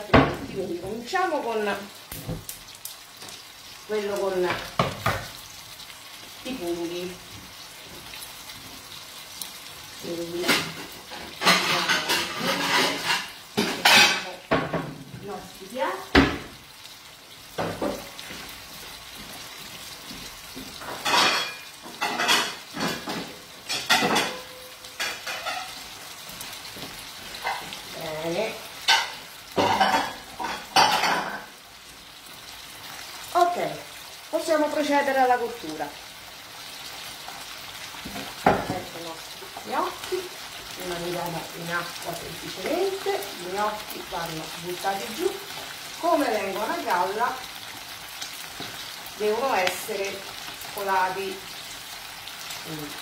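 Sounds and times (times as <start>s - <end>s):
sauces sizzling in pans: 0.0s - 53.0s
utensils and pans clattering: 10.4s - 15.1s, 20.7s - 25.9s, 28.8s - 31.5s.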